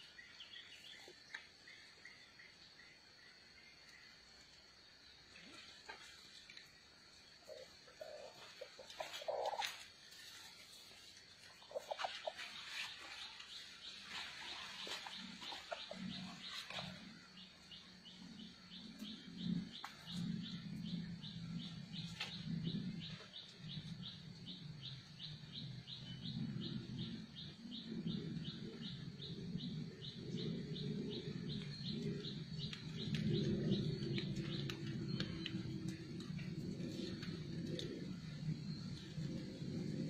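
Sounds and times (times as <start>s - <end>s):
low rumble: 13.4s - 40.0s.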